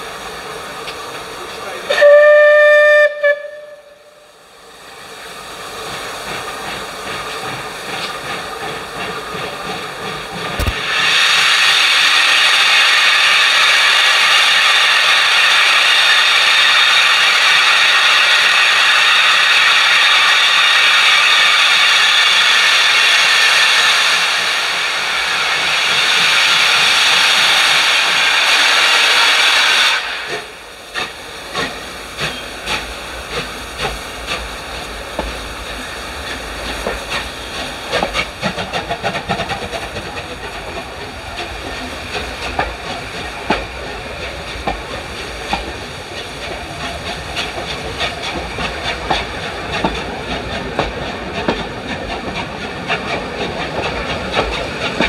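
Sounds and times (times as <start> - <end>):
steam hissing: 0.0 - 55.0
steam locomotive whistle: 1.9 - 4.3.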